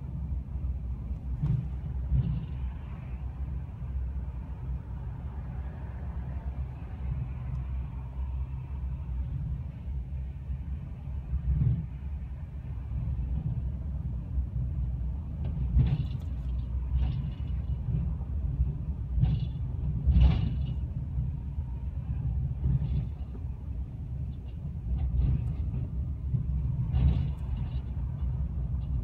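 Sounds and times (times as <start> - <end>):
road rumble inside car: 0.0 - 29.0
clunks and rattles: 0.1 - 5.2, 11.2 - 29.0.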